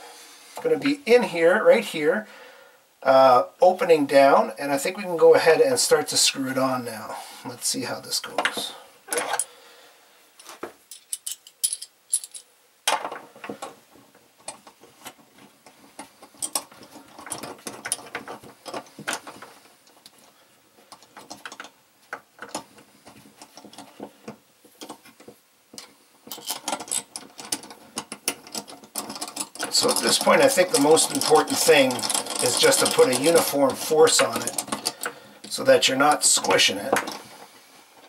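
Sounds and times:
small metal parts clicking: 0:10.9 - 0:13.2, 0:16.2 - 0:20.3, 0:25.8 - 0:35.6.

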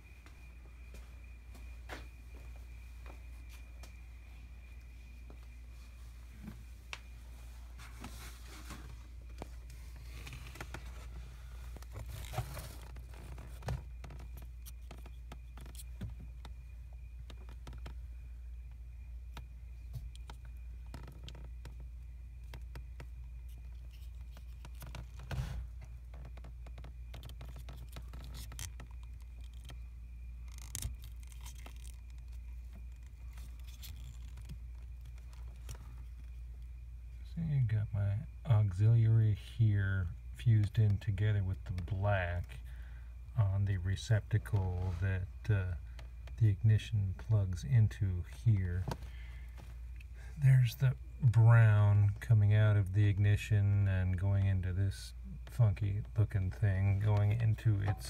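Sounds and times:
steady low hum: 0:00.0 - 0:58.0
rustling scrapes: 0:07.3 - 0:13.7
wiring being handled scrapes: 0:09.6 - 0:15.9, 0:30.5 - 0:36.3.

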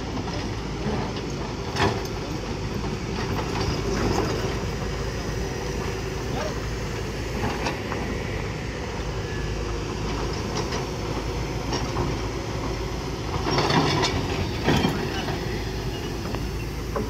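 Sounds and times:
excavator diesel engines running: 0:00.0 - 0:17.0
clanks of buckets and rock: 0:13.4 - 0:15.6.

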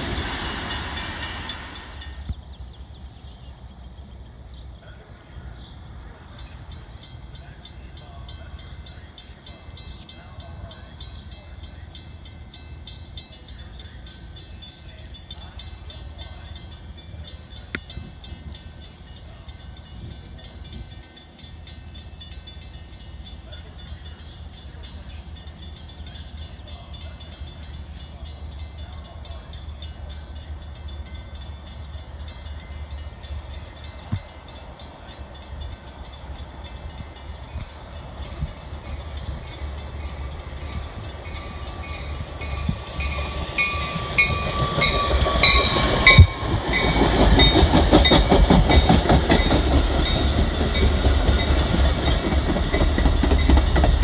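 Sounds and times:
train approaching rumble: 0:00.0 - 0:54.0.

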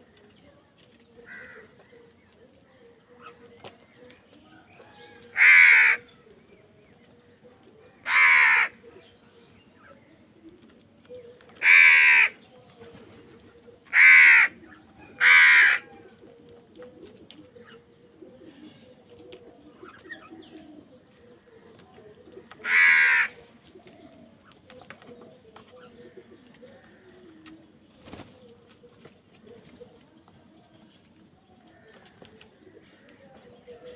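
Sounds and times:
crows cawing: 0:01.3 - 0:01.7, 0:05.3 - 0:06.1, 0:08.0 - 0:08.8, 0:11.6 - 0:12.4, 0:13.9 - 0:14.6, 0:15.2 - 0:16.0, 0:22.6 - 0:23.5.

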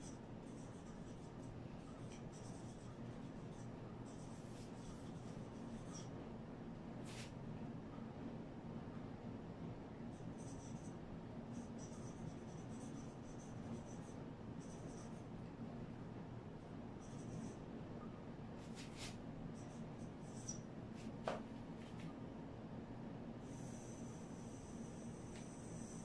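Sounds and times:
marker squeaking on whiteboard: 0:00.0 - 0:06.1, 0:10.4 - 0:10.9, 0:11.6 - 0:15.2, 0:17.0 - 0:17.6, 0:18.7 - 0:20.7.

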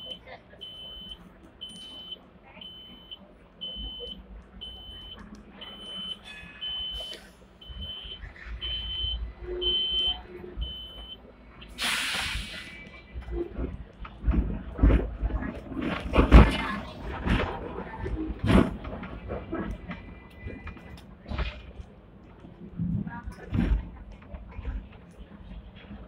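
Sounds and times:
high-pitched warning beeps: 0:00.0 - 0:11.2
tram rumbling: 0:00.0 - 0:26.0
short loud hiss: 0:11.8 - 0:12.8.

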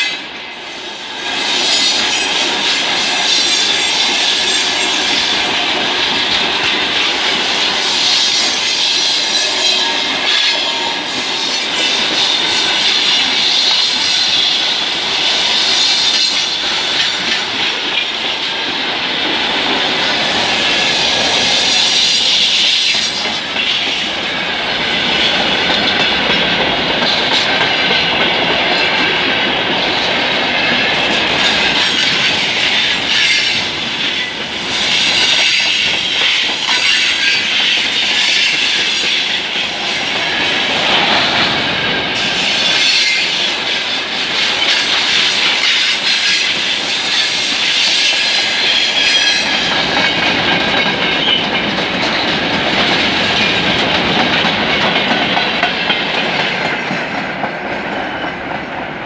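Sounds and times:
steel wheels rolling on rails: 0:00.0 - 0:58.9
high wheel squeal: 0:34.9 - 0:43.6.

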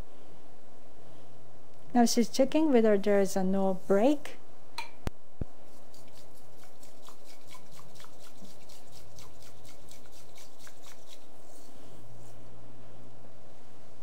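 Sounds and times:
tea whisk scraping in bowl: 0:05.7 - 0:12.4.

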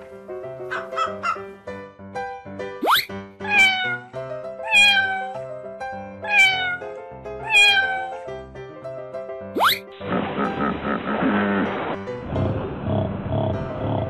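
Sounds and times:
light background music: 0:00.0 - 0:14.0
cat meowing: 0:03.4 - 0:05.5, 0:06.2 - 0:08.2.

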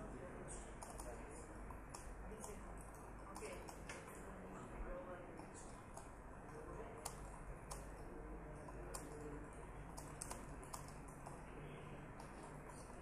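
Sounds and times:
steady low hum: 0:00.0 - 0:13.0
keyboard typing: 0:00.7 - 0:04.2, 0:05.3 - 0:11.5.

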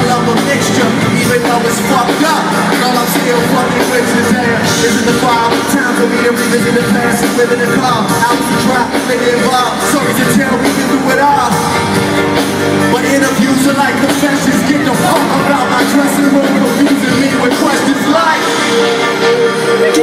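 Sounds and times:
amplified hip-hop music: 0:00.0 - 0:20.0
person singing: 0:00.0 - 0:20.0.

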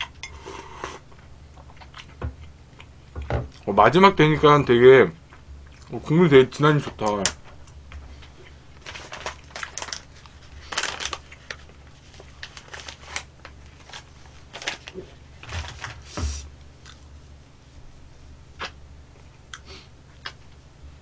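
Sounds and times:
plastic tissue packet crinkling: 0:08.7 - 0:16.1.

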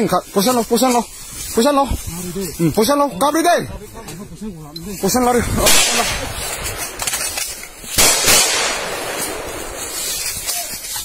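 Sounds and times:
gunshots echoing: 0:05.6 - 0:10.3.

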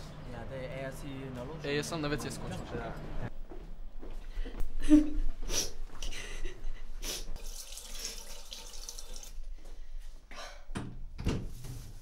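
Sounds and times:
tap water running into sink: 0:07.4 - 0:09.4.

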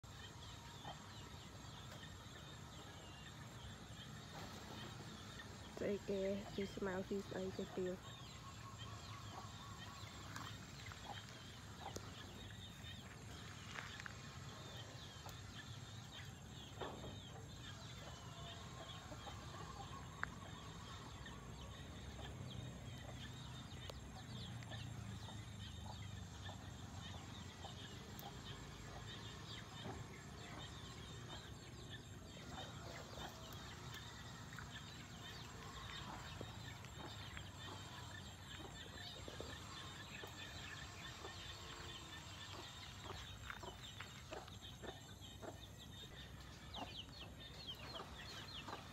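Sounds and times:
birds chirping: 0:00.0 - 0:48.9.

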